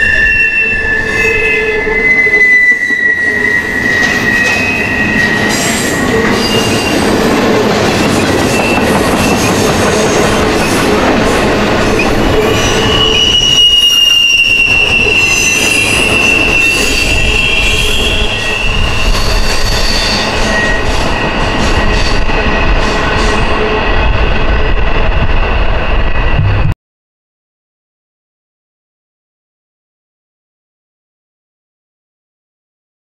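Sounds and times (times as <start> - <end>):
high wheel squeal: 0.0 - 7.4, 8.1 - 25.0
train wheels rumbling on rails: 0.0 - 26.8.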